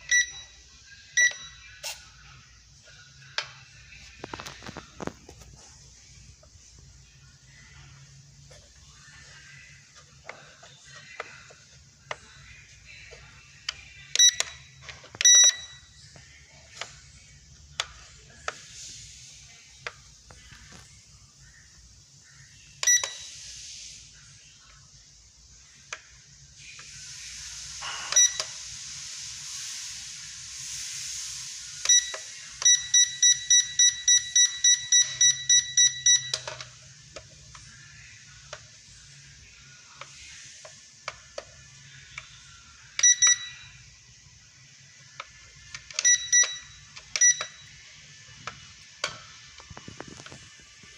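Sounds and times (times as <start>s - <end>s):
electronic beeps: 0.0s - 2.0s, 14.0s - 16.0s, 22.8s - 23.3s, 31.8s - 36.8s, 42.9s - 43.9s, 45.8s - 47.8s
hiss: 18.6s - 19.6s, 23.2s - 24.5s, 26.5s - 32.6s.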